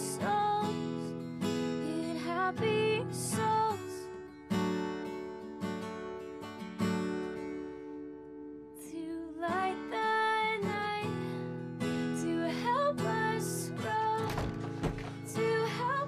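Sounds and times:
acoustic guitar strumming: 12.9 - 16.0.

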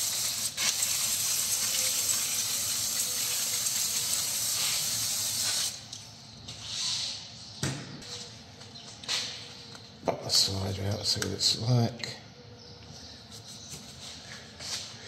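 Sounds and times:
aerosol spray hissing: 0.0 - 5.8.

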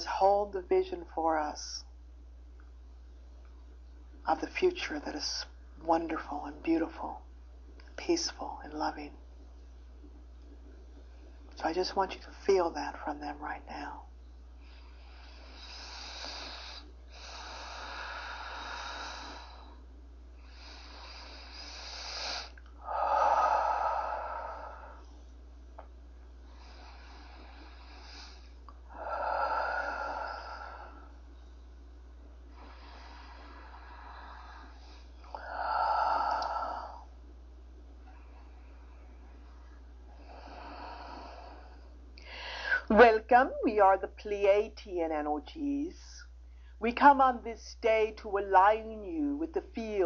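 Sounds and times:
steady low hum: 0.0 - 50.0
woman breathing deeply: 14.5 - 25.4, 26.4 - 37.2, 38.0 - 42.9.

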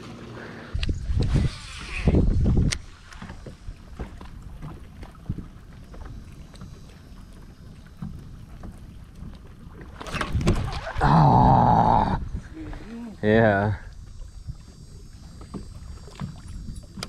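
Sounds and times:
wind buffeting microphone: 0.8 - 5.6, 11.7 - 14.8.

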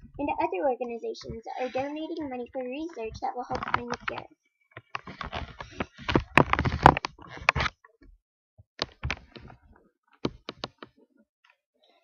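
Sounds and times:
person speaking: 0.0 - 4.3
knocks and clicks: 0.0 - 8.1, 8.8 - 9.6, 10.2 - 10.9.

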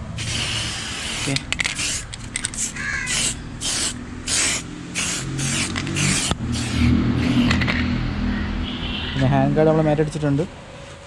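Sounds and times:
spray paint can hissing: 0.0 - 7.8.

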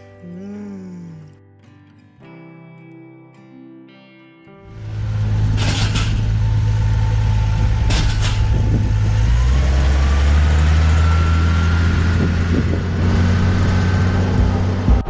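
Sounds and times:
vehicle engine running: 4.7 - 15.0.

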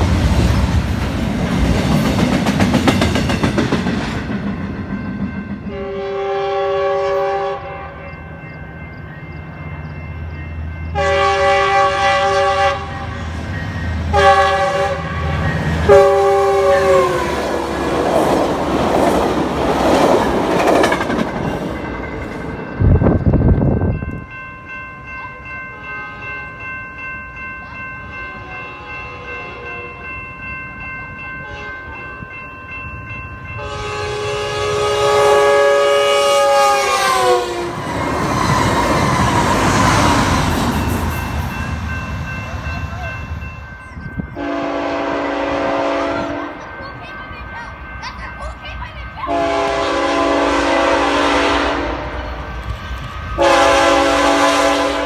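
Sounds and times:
loud rush of passing train: 0.0 - 55.0
train wheel and rail noise: 0.0 - 55.0
crossing warning bell ringing: 1.6 - 55.0
train horn blasts: 5.7 - 8.3, 10.9 - 13.3, 14.1 - 17.8, 25.8 - 26.4, 28.3 - 30.0, 31.4 - 32.0, 33.6 - 37.9, 44.4 - 46.7, 49.3 - 52.5, 53.4 - 55.0.

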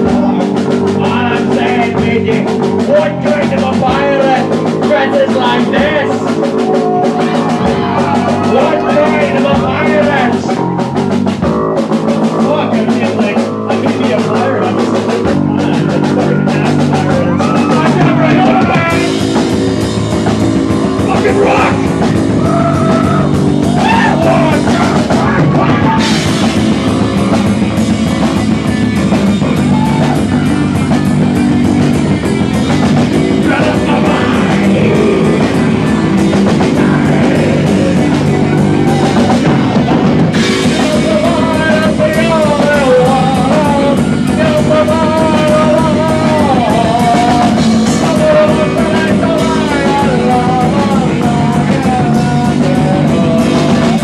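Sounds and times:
rock band playing: 0.0 - 54.0
person singing: 20.9 - 28.6, 29.4 - 54.0.

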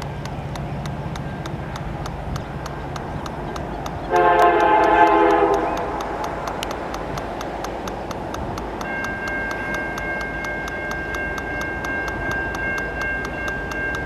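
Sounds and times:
rapid ticking: 0.0 - 14.0
locomotive air horn blast: 4.1 - 6.2.

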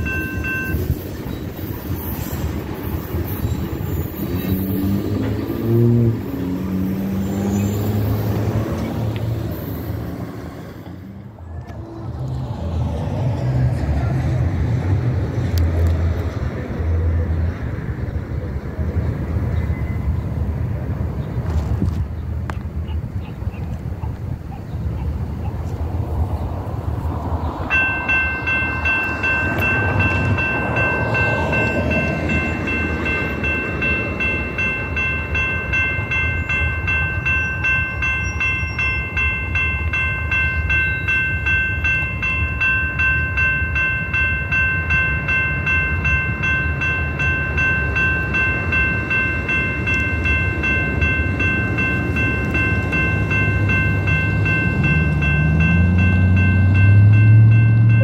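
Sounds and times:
crossing warning bells ringing: 0.0 - 20.7, 25.1 - 58.0
low train rumble: 0.0 - 58.0.

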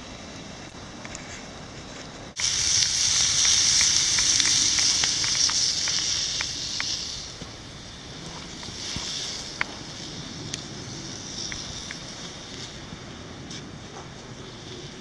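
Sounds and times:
campfire crackling: 0.1 - 15.0
patties sizzling in frying pan: 2.4 - 9.9.

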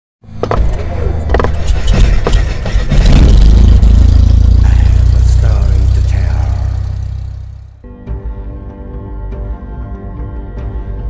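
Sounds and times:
sharp hits: 1.4 - 7.8
loud steady low rumble: 1.5 - 7.8.

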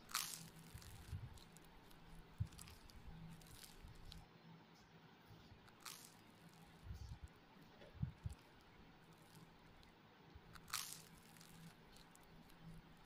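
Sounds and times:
person chewing: 0.0 - 3.8, 10.6 - 12.2
faint steady hum: 0.0 - 13.0.

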